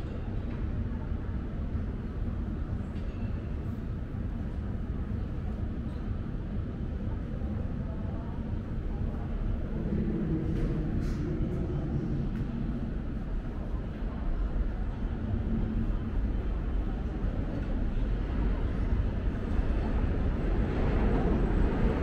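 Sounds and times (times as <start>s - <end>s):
low rumble: 9.0s - 17.2s.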